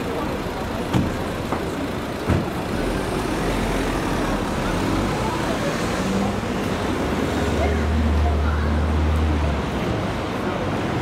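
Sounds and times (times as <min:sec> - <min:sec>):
bus engine running slowly: 0:00.0 - 0:05.6
cars idling: 0:00.0 - 0:05.6.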